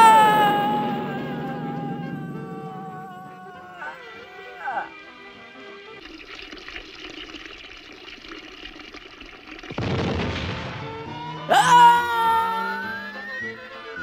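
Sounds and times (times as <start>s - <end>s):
gush of water: 5.4s - 11.1s.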